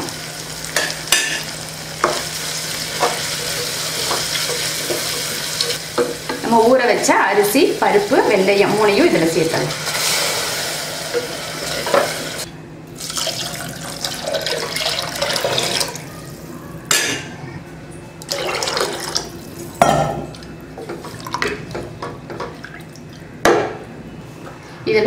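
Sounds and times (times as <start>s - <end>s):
water pouring into pot: 13.0s - 16.0s.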